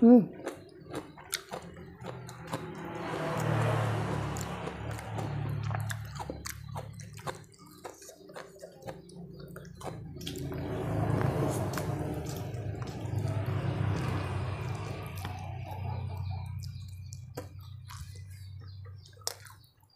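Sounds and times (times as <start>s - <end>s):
wet chewing and smacking: 0.3s - 19.9s.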